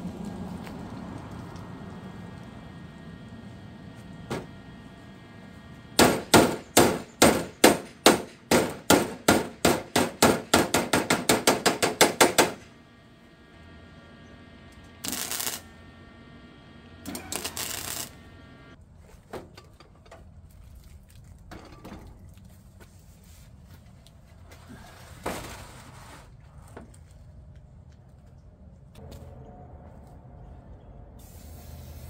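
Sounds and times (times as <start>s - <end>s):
short hisses: 31.2s - 32.0s.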